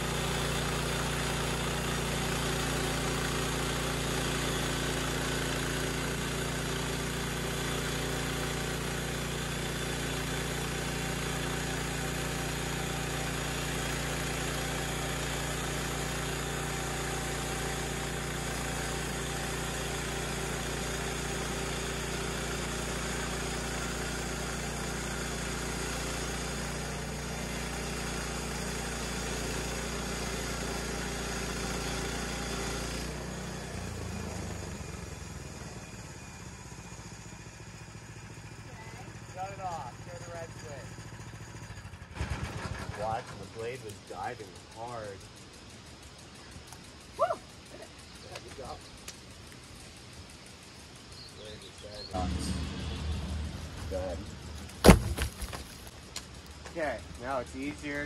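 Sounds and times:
band saw blade cutting log: 0:00.0 - 0:34.0, 0:52.1 - 0:55.9
small gas engine running: 0:00.0 - 0:58.0.

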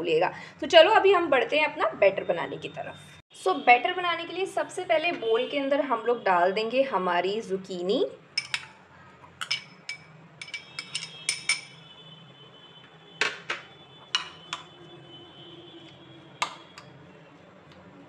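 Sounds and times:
spoon clinking and scraping bowls: 0:08.4 - 0:11.8, 0:14.1 - 0:14.7.

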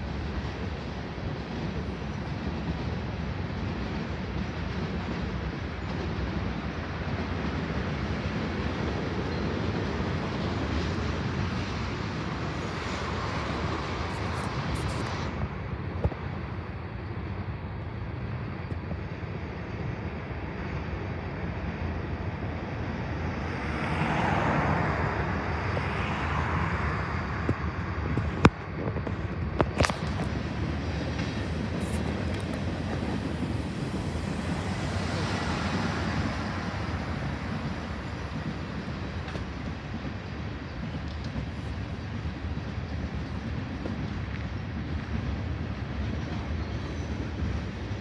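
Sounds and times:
cars passing on road: 0:00.0 - 0:48.0
freight train cars rolling: 0:00.0 - 0:48.0.

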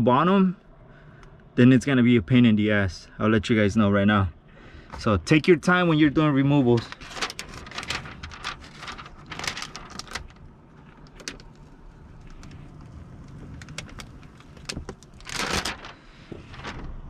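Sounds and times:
steady low hum: 0:00.0 - 0:17.0
film peeling crackles and rustles: 0:06.6 - 0:17.0.

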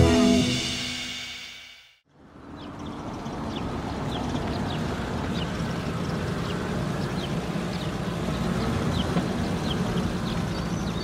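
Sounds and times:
small birds chirping: 0:02.4 - 0:11.0.

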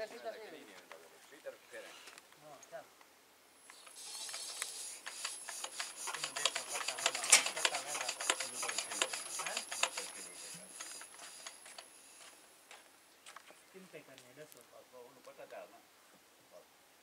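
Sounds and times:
clicks and scrapes: 0:03.7 - 0:12.4
drive belt knocking on ground: 0:05.2 - 0:10.2.

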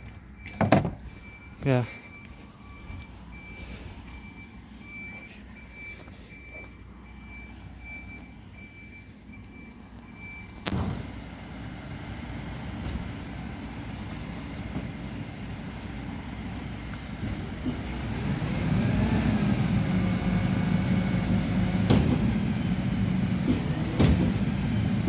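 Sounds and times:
reversing alarm beeping: 0:00.0 - 0:10.6
diesel engine running: 0:00.0 - 0:25.0.

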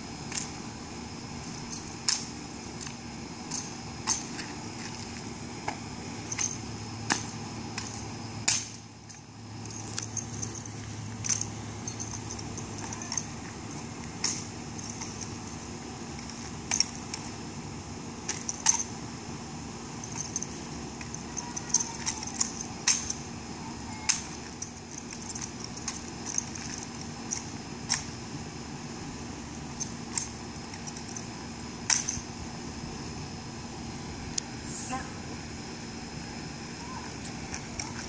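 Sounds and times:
steady low hum: 0:00.0 - 0:38.0
light metallic jingles: 0:01.4 - 0:02.2, 0:06.2 - 0:17.4, 0:18.3 - 0:19.0, 0:19.8 - 0:23.3, 0:23.9 - 0:28.2, 0:29.7 - 0:32.4.

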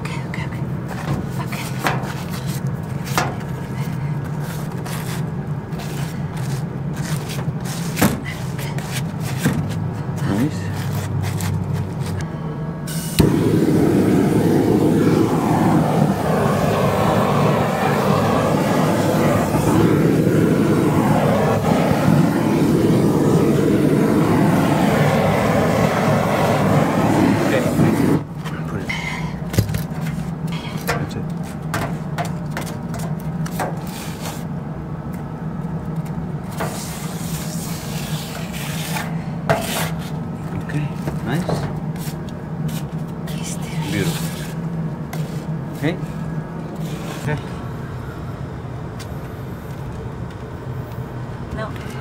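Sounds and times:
steady low hum: 0:00.0 - 0:52.0
torch flame roaring: 0:12.8 - 0:28.9, 0:36.1 - 0:49.9
scraping on roofing membrane: 0:36.6 - 0:40.2.

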